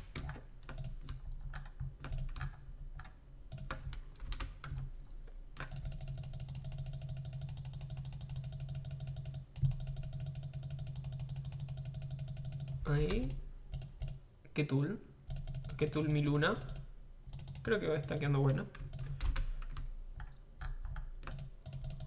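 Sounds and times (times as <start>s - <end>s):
fast mechanical ticking: 5.6s - 14.2s, 15.3s - 19.1s, 21.3s - 22.0s.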